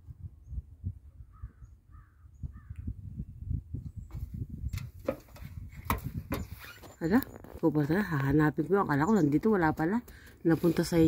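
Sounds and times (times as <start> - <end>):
low rumble on microphone: 0.0 - 7.7.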